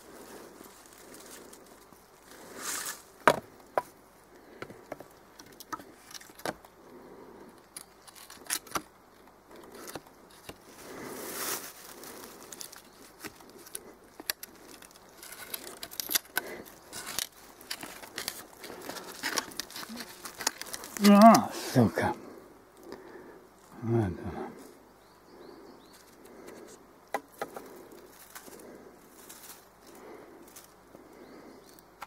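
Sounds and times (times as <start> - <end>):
rustling: 0.0 - 3.2, 9.5 - 21.8, 25.9 - 31.5
stick clicking and knocking: 27.1 - 27.7.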